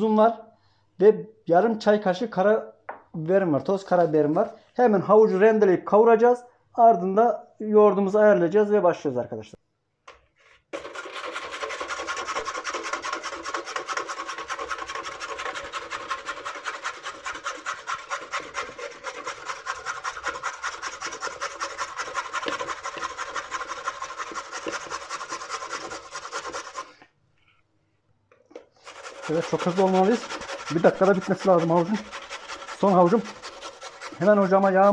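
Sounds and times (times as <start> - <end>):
carrots scraping on a box grater: 10.8 - 27.0, 28.8 - 34.9.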